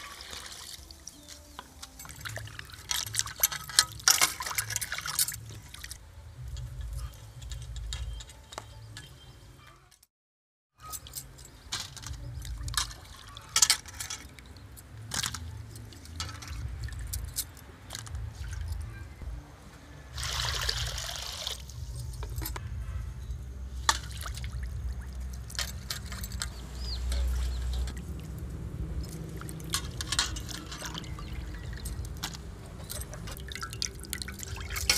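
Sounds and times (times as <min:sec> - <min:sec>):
water splashing: 0:00.0 - 0:06.0, 0:12.1 - 0:19.0, 0:20.1 - 0:22.4, 0:23.7 - 0:34.9
water sloshing and trickling: 0:00.0 - 0:09.2, 0:10.8 - 0:34.9.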